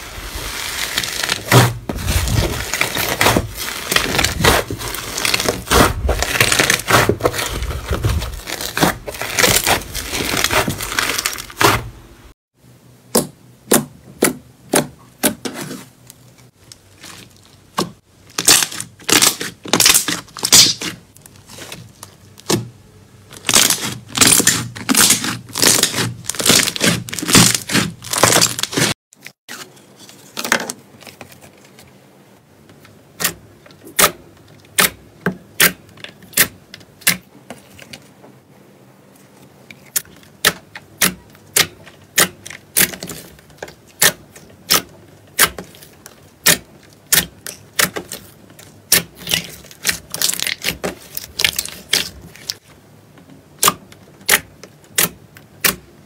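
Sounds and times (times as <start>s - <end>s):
slime crackling: 0.1s - 11.8s, 23.3s - 28.9s, 41.0s - 52.7s.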